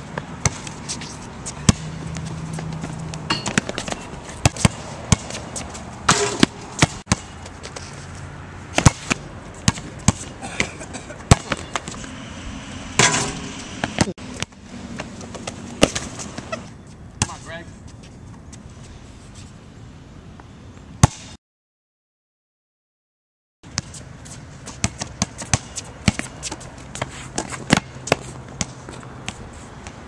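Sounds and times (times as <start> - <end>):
basketball bouncing on hard court: 1.6 - 7.4, 8.8 - 10.3, 11.3 - 12.0, 24.7 - 28.8.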